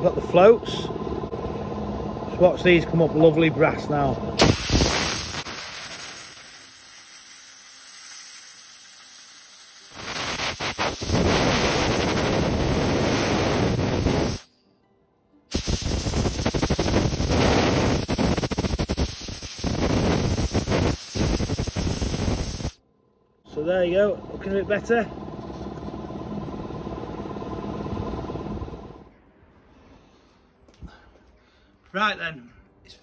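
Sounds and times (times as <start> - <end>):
ultrasonic cleaner hissing: 4.4 - 14.5, 15.5 - 22.8.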